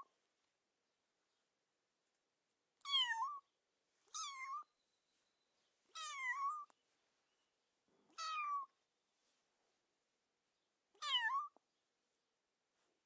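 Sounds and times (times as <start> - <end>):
cat meowing: 2.8 - 3.4, 4.1 - 4.7, 6.0 - 6.7, 8.1 - 8.7, 11.0 - 11.6.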